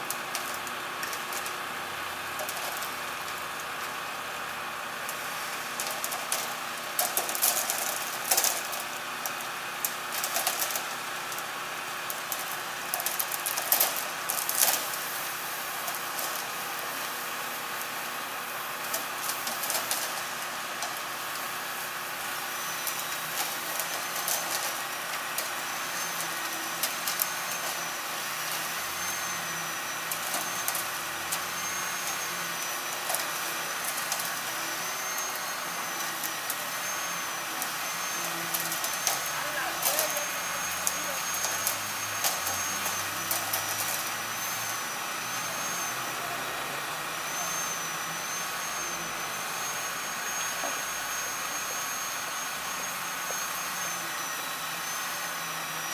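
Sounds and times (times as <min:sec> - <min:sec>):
truck engine running: 0:00.0 - 0:51.8
concrete pouring down chute: 0:00.0 - 0:55.9
faint wavering high whine: 0:12.2 - 0:55.9
shovels scraping wet concrete: 0:37.7 - 0:44.2.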